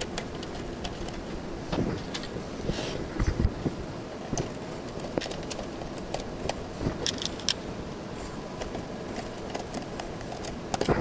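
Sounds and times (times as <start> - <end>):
wires and plastic box clicking: 0.0 - 2.4, 4.3 - 7.6, 8.6 - 11.0
low background noise: 0.0 - 11.0.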